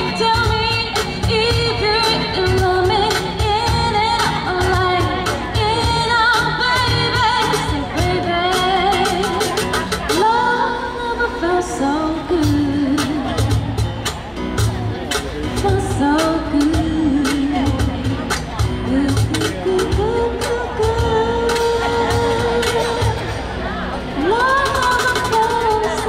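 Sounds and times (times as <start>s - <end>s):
drum kit beat: 0.0s - 10.7s, 12.2s - 26.0s
woman singing: 0.0s - 13.8s, 15.6s - 26.0s
guitar: 0.0s - 26.0s.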